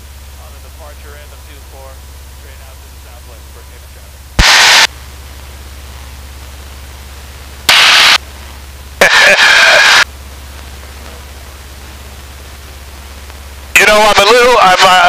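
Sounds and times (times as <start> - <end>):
radio static bursts: 0.0 - 15.0
garbled voice: 9.0 - 10.0.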